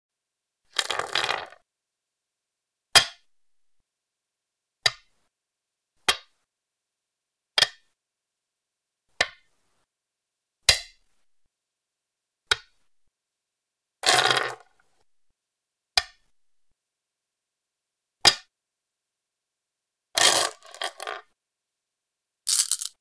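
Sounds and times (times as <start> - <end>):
stones clicking on wooden board: 0.8 - 1.6, 20.2 - 21.3, 22.5 - 23.0.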